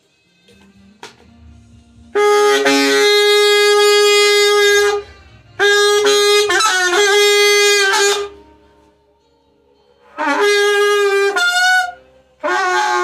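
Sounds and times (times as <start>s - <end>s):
alto saxophone playing long notes: 2.0s - 8.5s, 10.1s - 13.0s.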